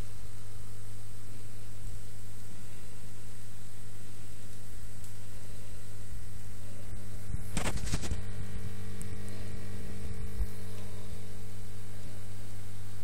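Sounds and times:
low electrical hum: 0.0s - 13.0s
short crackle: 6.8s - 12.1s.

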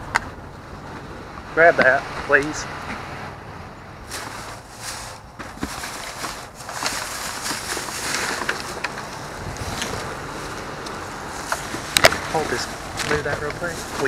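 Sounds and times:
plastic bags rustling and crinkling: 4.1s - 14.0s.

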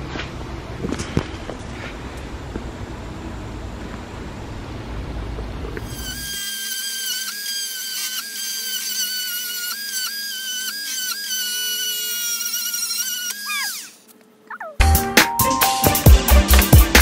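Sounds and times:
cordless drill driving a screw: 5.9s - 14.1s.

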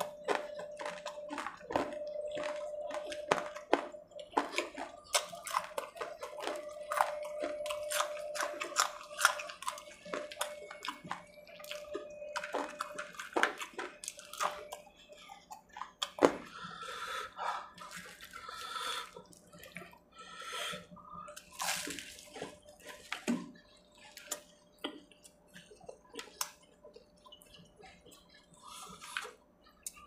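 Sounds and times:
wet chewing and lip smacks: 0.0s - 16.4s.

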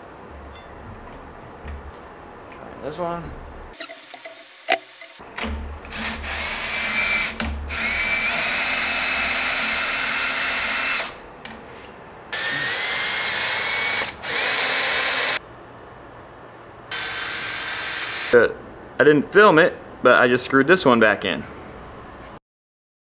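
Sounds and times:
cordless drill whining: 5.9s - 11.2s, 12.4s - 15.4s, 16.9s - 18.4s.

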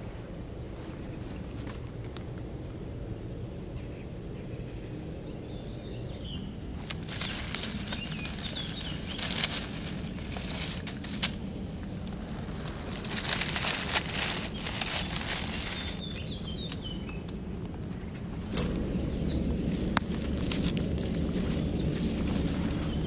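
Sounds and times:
bird chirping: 3.8s - 10.1s, 13.0s - 17.3s, 18.0s - 23.0s
dry leaves rustling and crackling: 6.3s - 23.0s.

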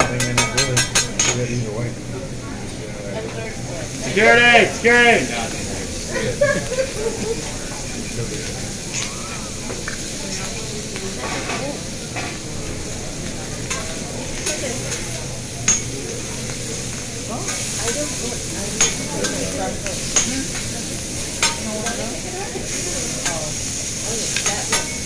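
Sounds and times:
shrimp sizzling on a griddle: 3.8s - 25.0s
metal utensils clinking: 13.6s - 16.6s, 17.4s - 25.0s.

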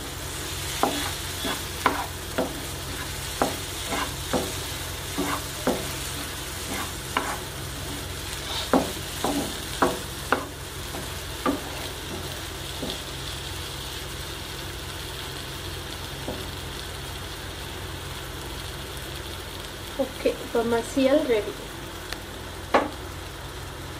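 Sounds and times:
low hum and hiss: 0.0s - 23.9s
spatula knocking against a pan: 5.2s - 6.0s, 8.7s - 13.0s.

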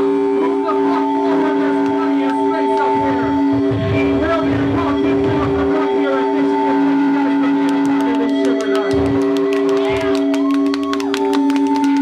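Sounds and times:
synth chords with heavy beat: 2.8s - 9.4s.

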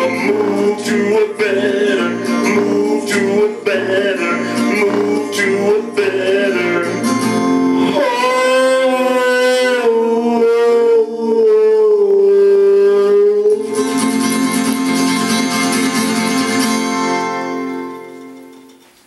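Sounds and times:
man singing: 0.0s - 14.2s
guitar accompaniment: 0.0s - 19.0s.

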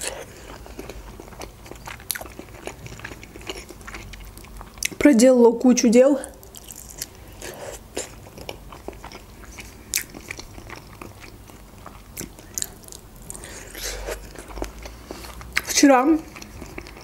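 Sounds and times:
person chewing: 0.0s - 5.0s, 6.2s - 17.0s.

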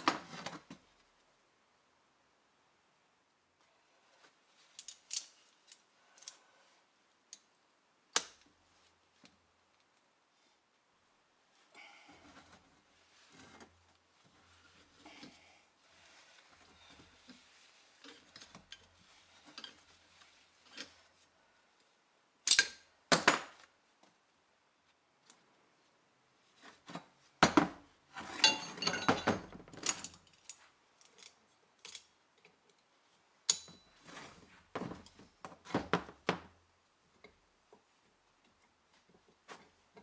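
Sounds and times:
metal tools clanking on workbench: 28.3s - 29.5s.

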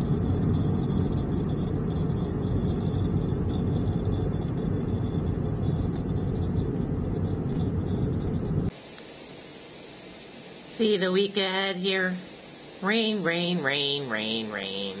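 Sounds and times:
car driving on road: 0.0s - 8.7s.

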